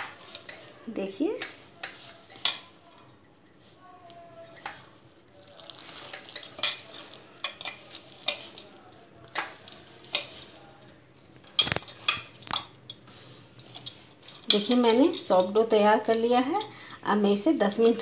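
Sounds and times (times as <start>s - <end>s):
dough kneading rustle: 0.0s - 12.5s
bangles clinking against steel bowl: 0.0s - 15.8s, 16.4s - 18.0s.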